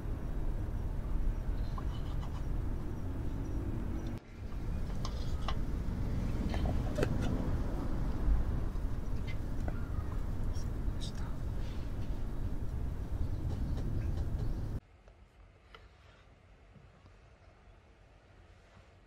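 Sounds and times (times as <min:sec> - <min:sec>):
steady low rumble: 0:00.0 - 0:14.8.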